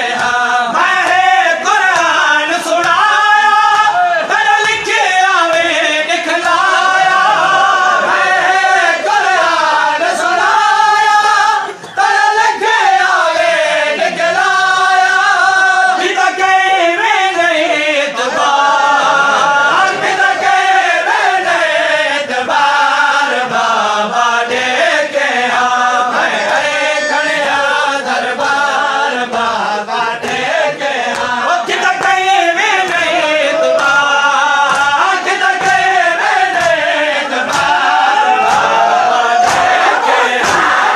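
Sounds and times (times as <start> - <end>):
men chanting a lament: 0.0 - 40.9
hands beating on chests: 34.6 - 40.9.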